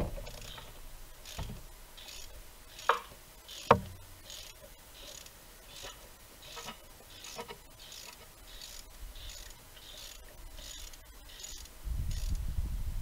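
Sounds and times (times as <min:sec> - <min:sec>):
ratchet wrench clicking: 0:01.2 - 0:12.4.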